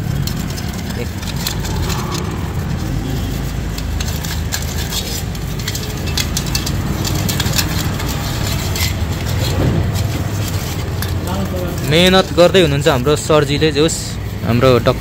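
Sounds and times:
low machine hum: 0.0 - 11.8
clicks and scrapes on bicycle chain: 0.0 - 15.0.

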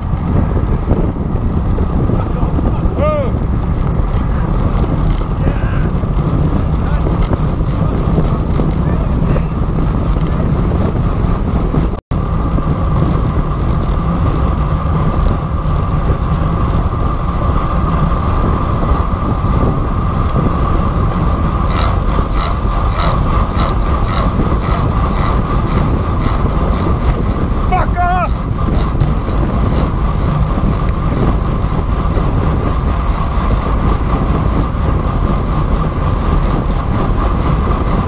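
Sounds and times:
bicycle rolling with steady hum: 0.0 - 38.0
wind rushing over microphone: 0.0 - 38.0
quick ticks: 21.7 - 26.8.

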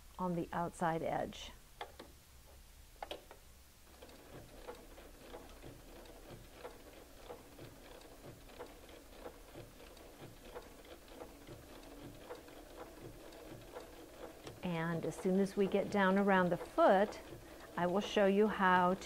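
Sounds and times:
sewing machine stitching: 3.9 - 19.0.

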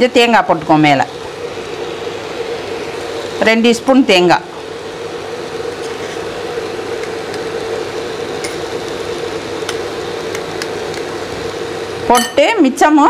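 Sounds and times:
fan whirring hum: 0.0 - 13.0
spoon tapping metal tube: 8.4 - 8.7, 12.1 - 12.4.

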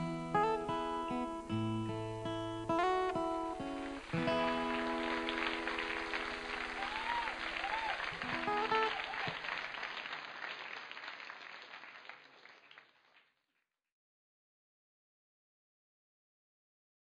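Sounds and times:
acoustic guitar chord ringing: 0.0 - 9.1
audience applauding: 3.6 - 13.3
audience cheering: 3.8 - 12.5.

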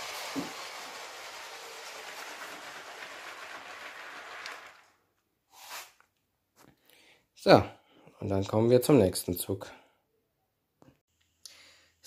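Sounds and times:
toy train motor whirring: 0.0 - 5.0.

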